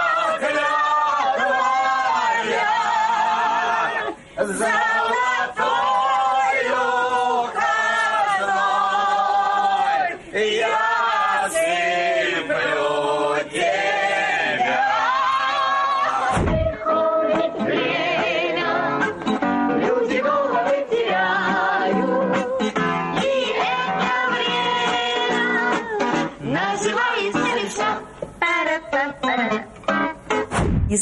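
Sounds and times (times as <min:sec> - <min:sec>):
group singing in chorus: 0:00.0 - 0:29.6
low thump: 0:16.3 - 0:16.9, 0:30.5 - 0:31.0.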